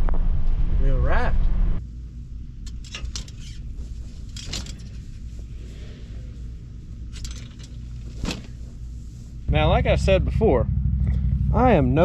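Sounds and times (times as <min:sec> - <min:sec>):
steady low rumble: 0:00.0 - 0:12.0
metallic clanks and rattles: 0:02.6 - 0:05.7, 0:06.6 - 0:08.9.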